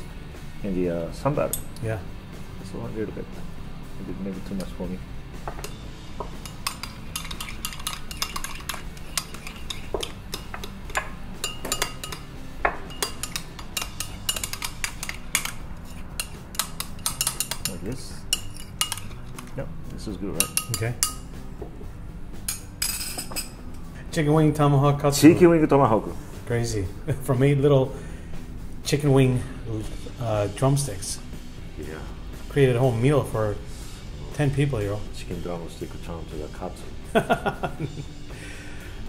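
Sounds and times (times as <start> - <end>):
metal spoon clinking in ceramic bowl: 5.5 - 19.6, 20.4 - 21.3, 22.4 - 23.6.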